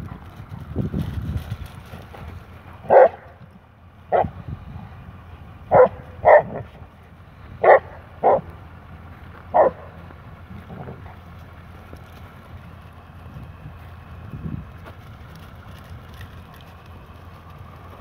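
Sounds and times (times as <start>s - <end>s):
dog barking: 2.8s - 3.3s, 5.7s - 6.7s, 7.6s - 8.5s, 9.5s - 9.9s.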